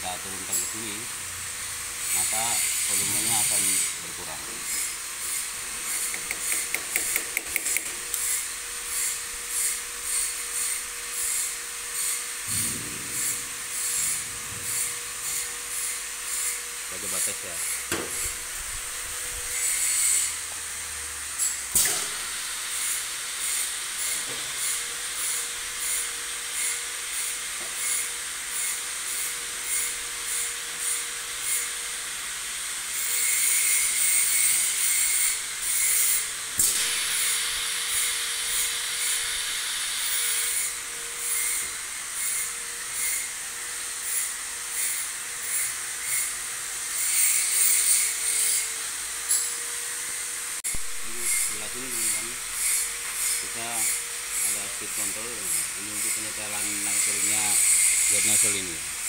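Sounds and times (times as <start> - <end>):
compressed air hissing: 0.0 - 20.5, 21.4 - 28.0, 33.5 - 41.9
pneumatic valve puffs: 0.4 - 16.6, 17.6 - 20.5, 21.4 - 31.8, 32.9 - 43.3, 50.7 - 55.7.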